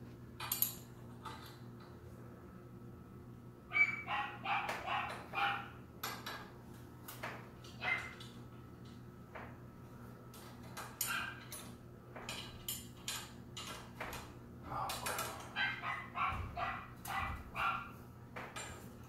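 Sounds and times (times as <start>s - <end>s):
puppy barking: 3.7s - 5.8s, 7.8s - 8.2s, 11.1s - 11.4s, 15.5s - 18.0s.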